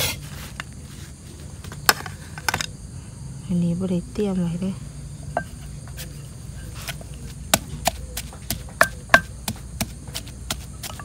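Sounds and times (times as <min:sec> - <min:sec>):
knife chopping on wooden board: 0:06.9 - 0:11.0.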